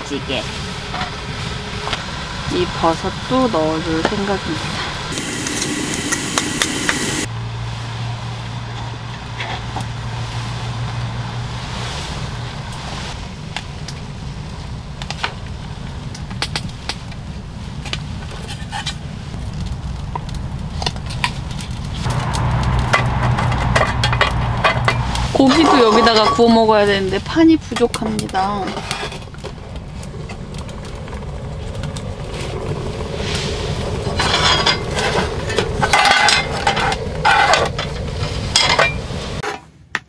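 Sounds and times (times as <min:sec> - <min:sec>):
low steady hum: 0:19.2 - 0:39.4.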